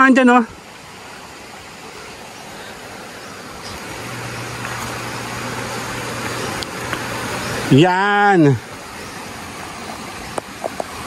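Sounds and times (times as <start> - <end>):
steady low hum: 0.5 - 11.0
vehicle engine running: 2.8 - 7.9.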